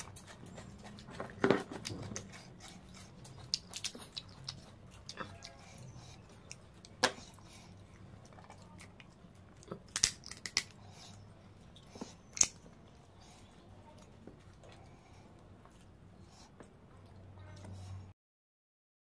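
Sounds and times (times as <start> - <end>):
crab shell cracking: 8.9 - 10.8, 12.3 - 12.7.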